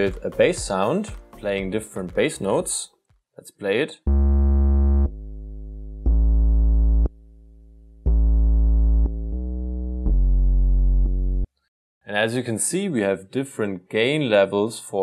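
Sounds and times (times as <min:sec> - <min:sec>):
sustained bass notes: 0:04.1 - 0:11.5.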